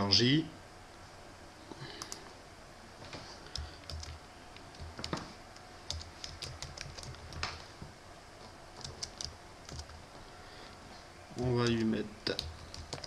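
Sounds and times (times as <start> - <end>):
keyboard typing clicks: 3.5 - 5.2, 5.9 - 7.6, 8.8 - 10.0, 11.4 - 13.0.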